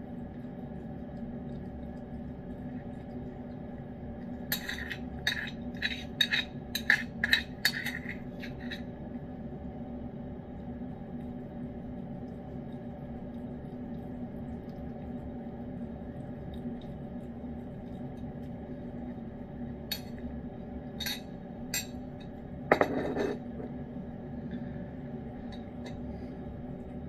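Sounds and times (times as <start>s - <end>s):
steady low hum: 0.0s - 27.0s
ceramic dish clattering on bowl: 22.7s - 23.4s.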